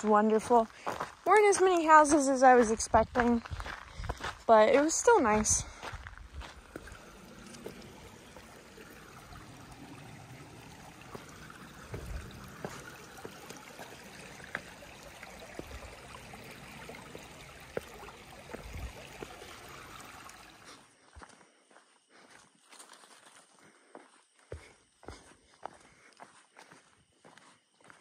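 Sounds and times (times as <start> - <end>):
shoes stepping on stones: 0.0 - 8.4, 11.8 - 14.8
stream trickling over rocks: 0.0 - 21.2.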